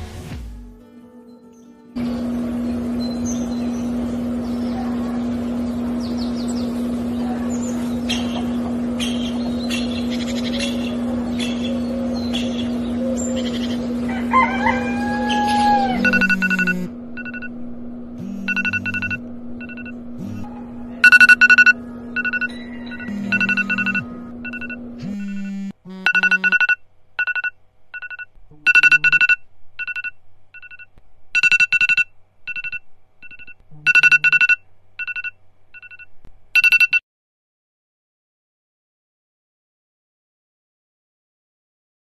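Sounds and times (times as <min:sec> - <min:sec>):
steady low hum: 0:02.0 - 0:36.5
mobile phone ringtone beeping: 0:16.0 - 0:17.5, 0:18.2 - 0:20.4, 0:21.0 - 0:37.0.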